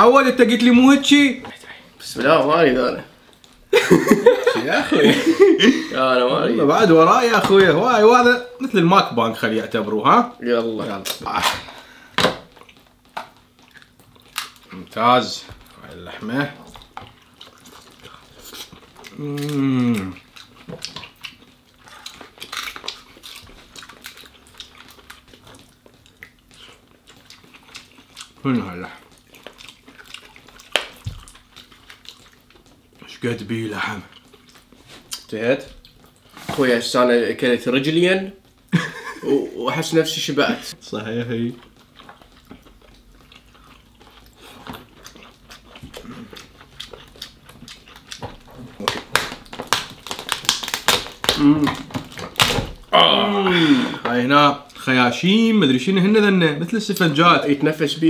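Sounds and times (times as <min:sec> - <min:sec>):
person chewing: 0:10.8 - 0:33.1, 0:33.8 - 0:36.4, 0:41.4 - 0:54.8
crab shells cracking: 0:11.0 - 0:14.8, 0:16.6 - 0:32.9, 0:41.6 - 0:52.9.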